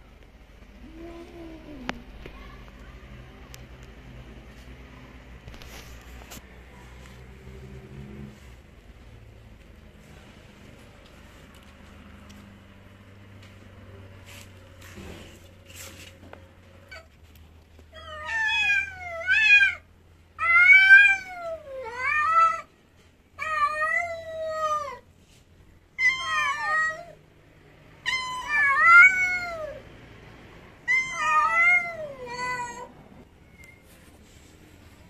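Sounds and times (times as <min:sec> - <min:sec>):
cat meowing loudly: 0:18.0 - 0:19.8, 0:26.0 - 0:27.2, 0:30.9 - 0:32.9.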